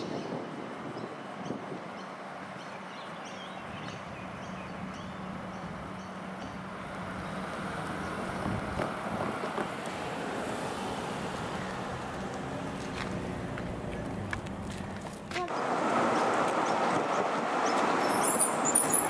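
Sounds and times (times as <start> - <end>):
birds chirping: 0.0 - 8.4
vehicle humming: 0.0 - 19.0.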